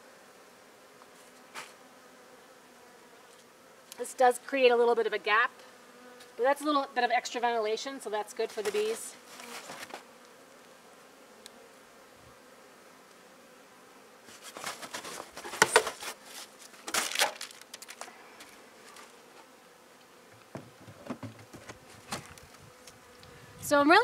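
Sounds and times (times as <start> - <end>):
bees buzzing: 0.0 - 24.0
plastic wrapping crinkling: 14.4 - 18.1
hive lid knocks: 20.3 - 22.4.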